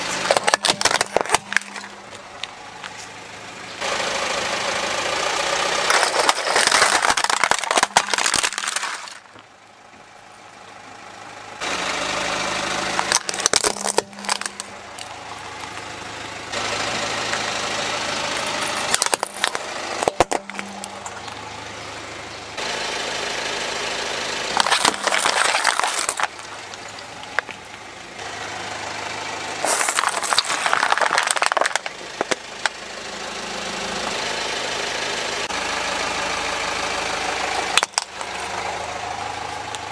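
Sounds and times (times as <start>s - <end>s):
car engine running: 0.0s - 39.9s
plastic cracking and crunching: 0.1s - 3.0s, 5.8s - 9.4s, 12.9s - 15.8s, 18.4s - 21.4s, 24.5s - 27.8s, 29.6s - 32.8s, 37.8s - 38.4s.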